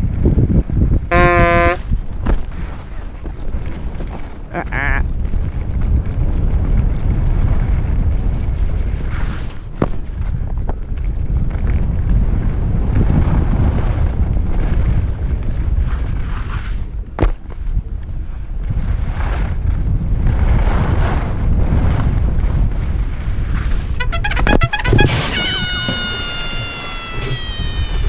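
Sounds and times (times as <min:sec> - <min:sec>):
wind buffeting microphone: 0:00.0 - 0:24.0
ski edges scraping snow: 0:08.8 - 0:09.6, 0:15.8 - 0:16.8, 0:18.9 - 0:19.5.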